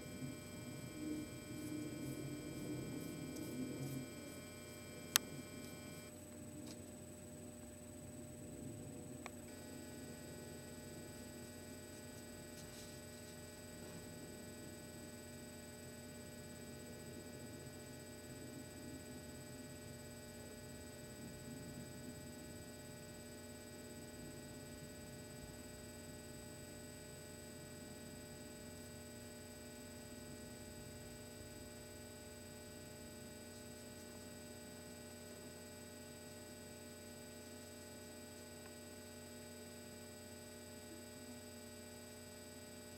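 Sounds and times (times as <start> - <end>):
high-pitched whine tones: 0.0 - 29.9
low electrical hum: 0.0 - 42.9.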